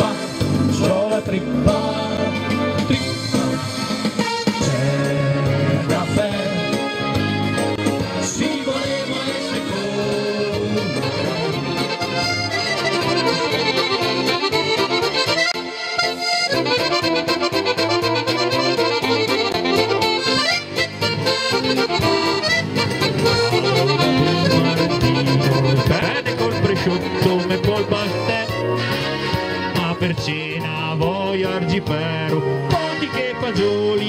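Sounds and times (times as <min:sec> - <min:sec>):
keyboard: 0:00.0 - 0:34.0
clarinet melody: 0:04.1 - 0:30.0
steady bass beat: 0:04.6 - 0:15.7, 0:16.4 - 0:32.5.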